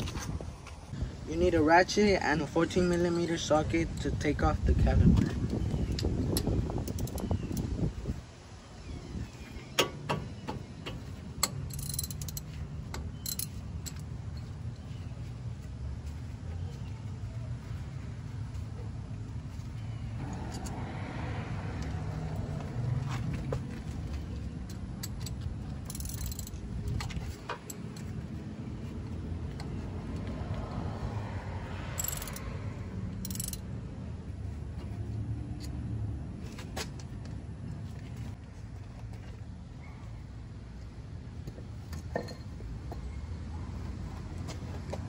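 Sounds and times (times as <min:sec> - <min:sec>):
steady low rumble: 0:02.8 - 0:35.1
socket ratchet clicking: 0:05.8 - 0:07.7, 0:09.8 - 0:14.0, 0:25.0 - 0:28.0, 0:32.0 - 0:32.5, 0:33.2 - 0:33.6.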